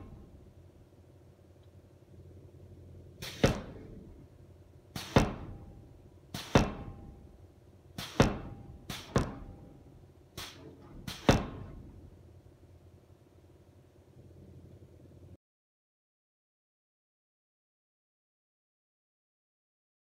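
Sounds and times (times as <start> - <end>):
power hammer striking hot steel: 3.2 - 4.2, 4.9 - 7.4, 8.0 - 12.0.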